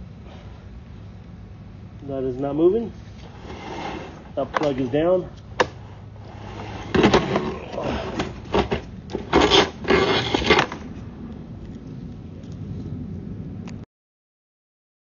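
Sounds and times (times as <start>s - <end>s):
camera cable scraping and rattling: 3.2s - 11.0s.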